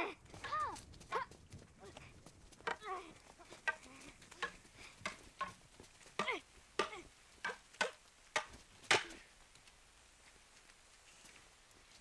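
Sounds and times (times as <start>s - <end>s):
wooden swords clacking: 2.6s - 5.6s, 6.2s - 9.2s.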